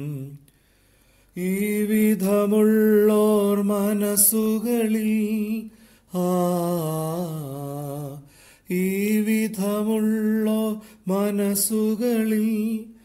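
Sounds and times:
man singing a hymn unaccompanied: 0.0s - 0.4s, 1.3s - 13.0s
man breathing: 0.5s - 1.4s, 5.7s - 6.1s, 8.2s - 8.7s, 10.8s - 11.1s.

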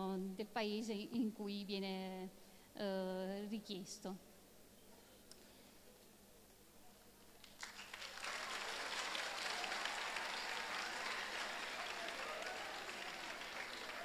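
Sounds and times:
audience applauding: 7.4s - 14.0s.

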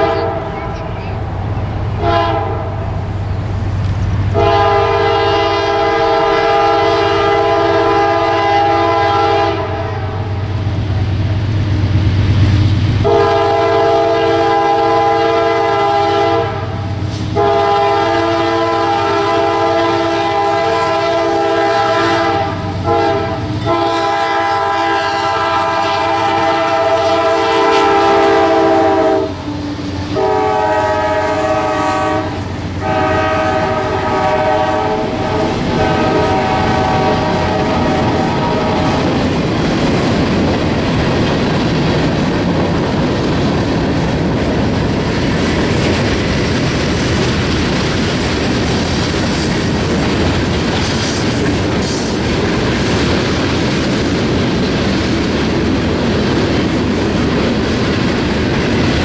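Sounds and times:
locomotive air horn blasts: 0.0s - 0.6s, 2.0s - 2.8s, 4.3s - 10.3s, 13.0s - 39.2s
train wheels clattering over rail joints: 35.3s - 59.0s.

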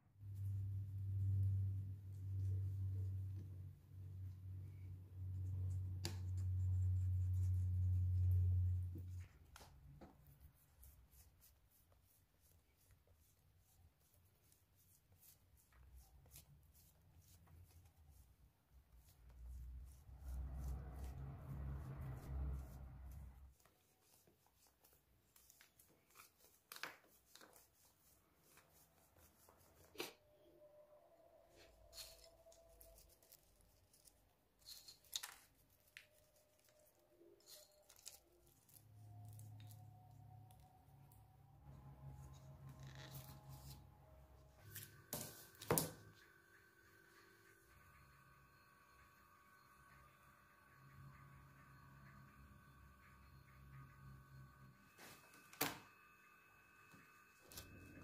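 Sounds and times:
low steady hum: 0.0s - 23.6s, 35.8s - 58.0s.

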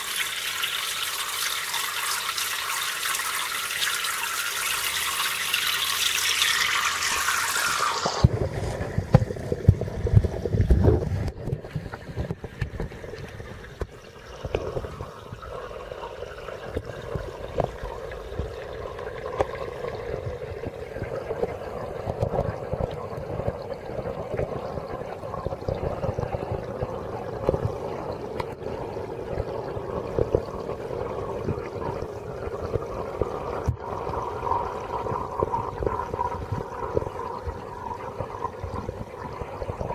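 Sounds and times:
water running in aquarium: 0.0s - 39.9s.

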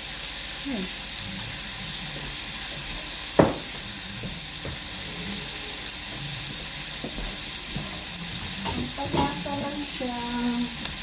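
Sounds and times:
meat and onions sizzling in wok: 0.0s - 11.0s
sharp knock: 3.4s - 3.7s.

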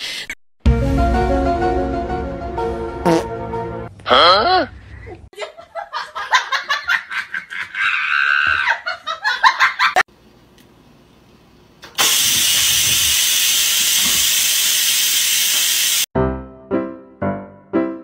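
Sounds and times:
steam hissing from valve: 12.0s - 16.1s.

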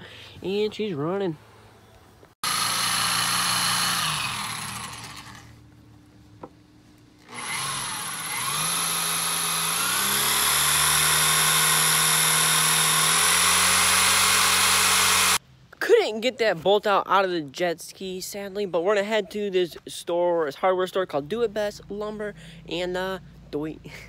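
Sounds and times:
electric drill drilling: 2.4s - 5.5s, 7.2s - 15.4s.

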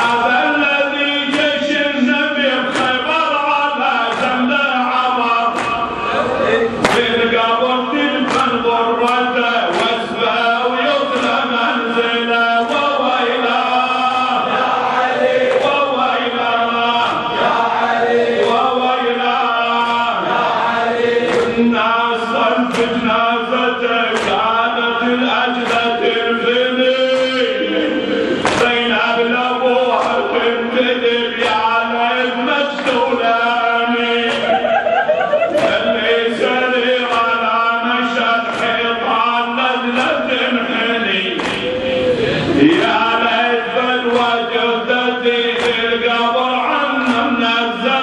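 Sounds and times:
man chanting a lament: 0.0s - 34.9s, 35.5s - 48.0s
sharp beat: 8.2s - 13.2s.

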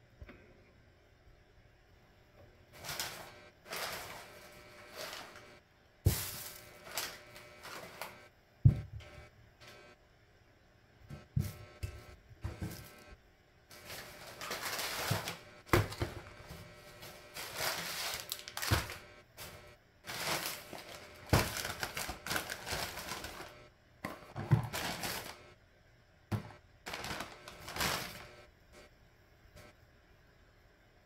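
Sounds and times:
plastic bags rustling: 2.8s - 8.2s, 13.7s - 25.5s, 26.3s - 28.4s
groceries knocking on table: 8.6s - 9.1s, 15.0s - 16.6s, 18.6s - 19.0s, 20.1s - 23.3s, 24.1s - 25.3s, 26.3s - 28.1s.

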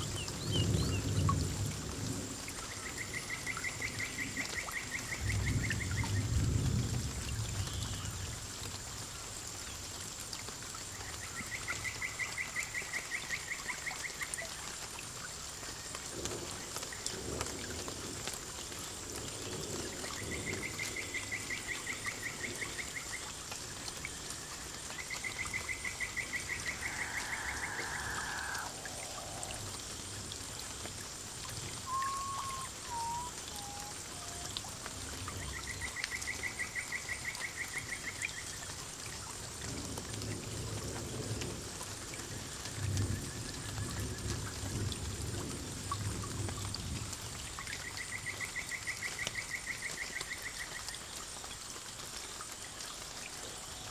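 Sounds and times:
water trickling and splashing: 0.0s - 53.9s
falling whistled notes: 31.9s - 34.4s
fast pulsed trilling call: 31.9s - 34.5s.

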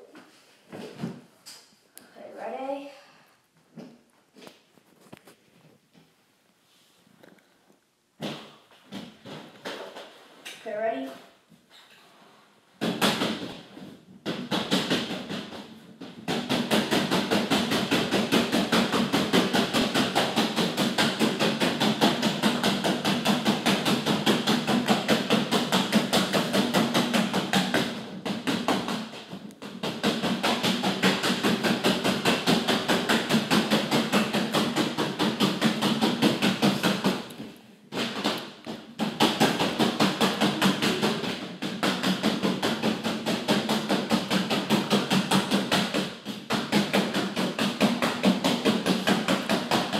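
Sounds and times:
rubber balloon being punched: 8.2s - 10.1s, 12.8s - 49.9s.

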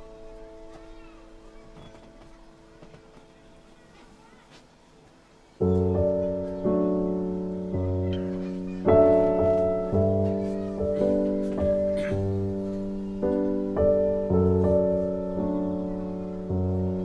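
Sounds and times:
slow piano chords: 0.0s - 4.3s, 5.2s - 17.0s.

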